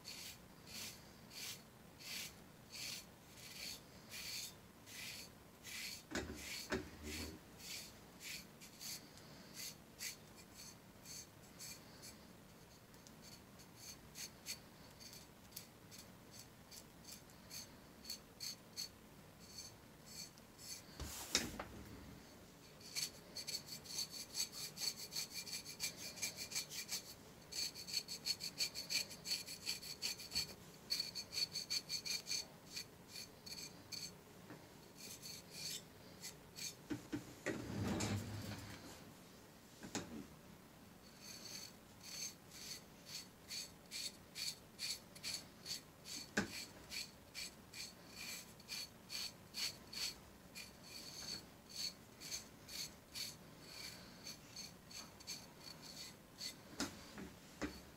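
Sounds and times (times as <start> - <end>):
file rasping on skin: 0.0 - 21.0, 22.7 - 34.1, 34.9 - 36.8, 41.1 - 56.7.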